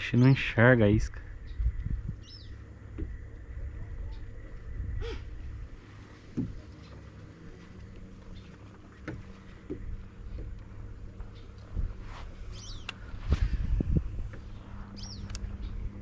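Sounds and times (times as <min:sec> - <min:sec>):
wind buffeting microphone: 0:00.7 - 0:07.2, 0:09.2 - 0:16.0
water lapping at kayak: 0:05.2 - 0:13.2.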